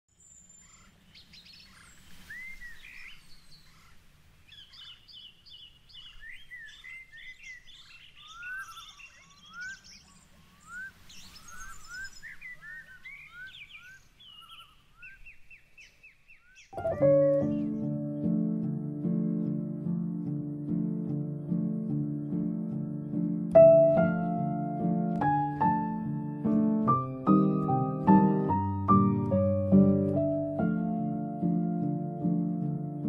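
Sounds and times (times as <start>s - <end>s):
birds singing and calling: 0.1s - 19.6s.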